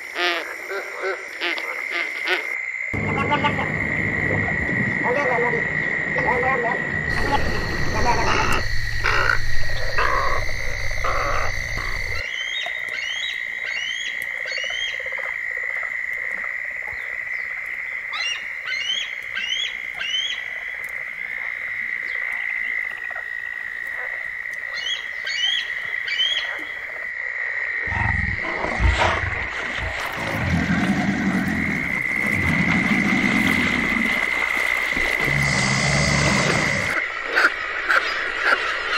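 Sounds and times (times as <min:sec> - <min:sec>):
deep rumbling: 0:03.0 - 0:12.2, 0:27.9 - 0:37.0
heron croaking: 0:07.1 - 0:12.2, 0:30.2 - 0:38.6.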